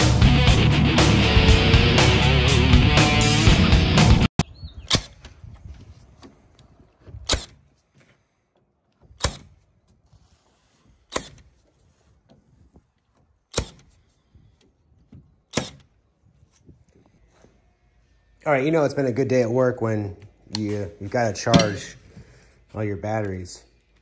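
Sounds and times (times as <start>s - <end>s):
stapler shots into plywood: 4.8s - 5.4s, 7.1s - 7.7s, 9.1s - 9.6s, 11.1s - 11.5s, 13.5s - 14.0s, 15.5s - 16.0s.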